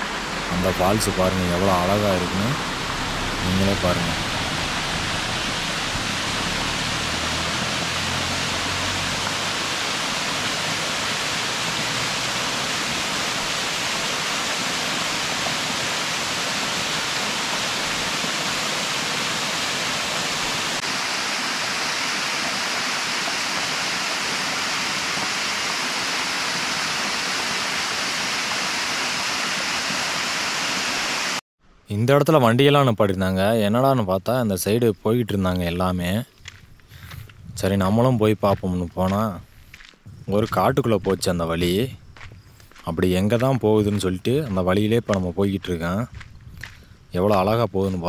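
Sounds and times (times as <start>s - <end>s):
small waterfall rushing onto rocks: 0.0s - 31.4s.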